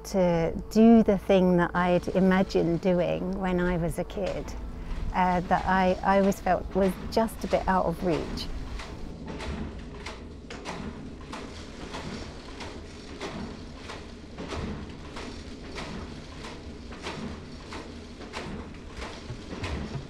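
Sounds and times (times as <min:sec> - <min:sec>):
low rumble: 0:00.6 - 0:13.1
knitting machine carriage clacking: 0:01.7 - 0:20.0.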